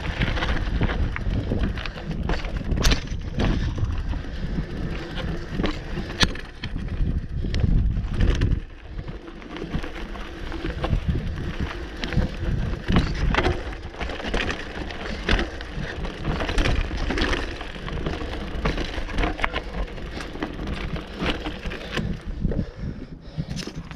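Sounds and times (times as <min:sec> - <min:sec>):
bike knocking and rattling: 0:00.0 - 0:23.9
wind rumble on microphone: 0:00.0 - 0:23.9
tyres crunching over rock: 0:07.6 - 0:22.2.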